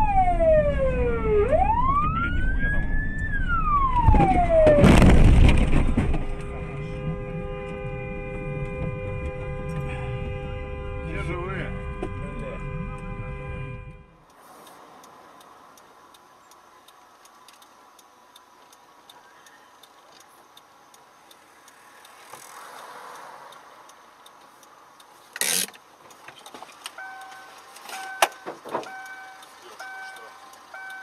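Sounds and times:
engine and road noise: 0.0s - 31.0s
loud thump: 4.0s - 6.4s
two-pitch warning chime: 28.9s - 31.0s.

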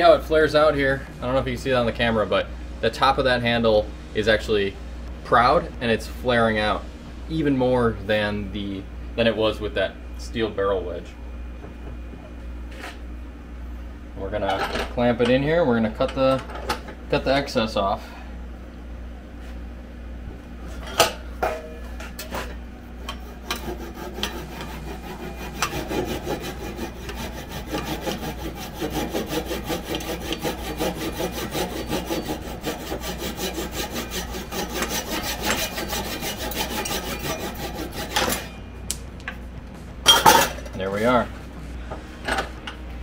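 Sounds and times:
handsaw sawing wood: 23.0s - 38.4s
sharp knocks of saw: 23.0s - 38.5s.

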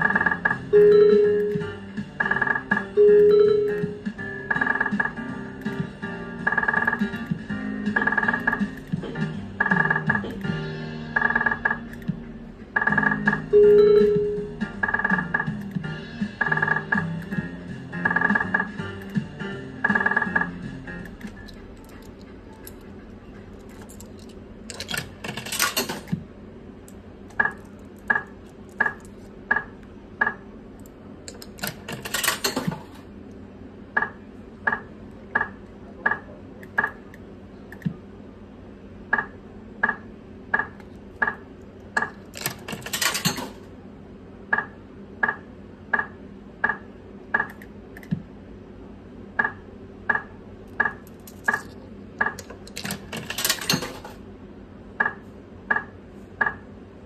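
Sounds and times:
slot machine clattering burst: 0.0s - 12.0s, 12.7s - 26.1s, 31.6s - 32.9s, 42.4s - 43.6s, 52.8s - 54.2s.

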